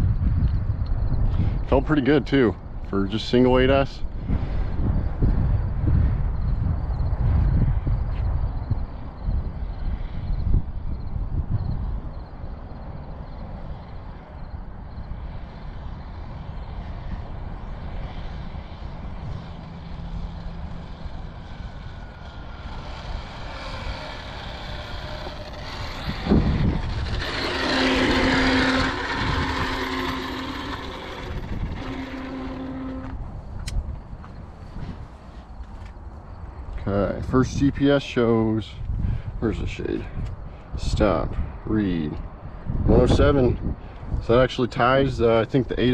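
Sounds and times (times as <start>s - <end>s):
wind rumble on microphone: 0.0s - 45.9s
vehicle passing by: 12.4s - 35.6s.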